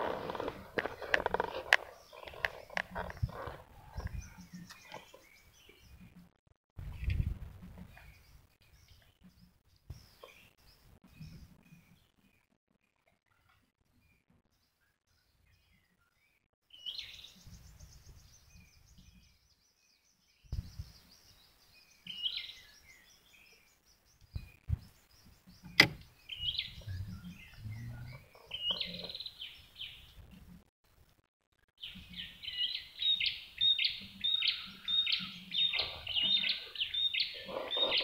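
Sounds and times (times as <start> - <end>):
birds chirping and singing: 0.0 - 6.2, 14.0 - 30.4, 31.8 - 38.0
sharp click: 25.7 - 26.1
low rumble: 26.7 - 28.2.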